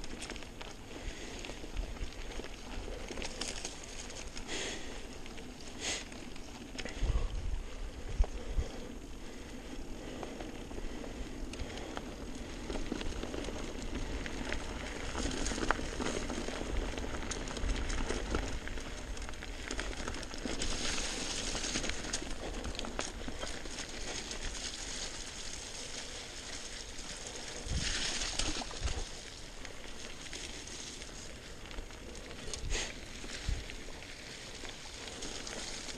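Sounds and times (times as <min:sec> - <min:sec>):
bike clicking and rattling: 0:00.0 - 0:35.9
bike tyres on dirt and stones: 0:00.0 - 0:35.9
wind rumble on microphone: 0:06.9 - 0:21.0, 0:27.6 - 0:29.1.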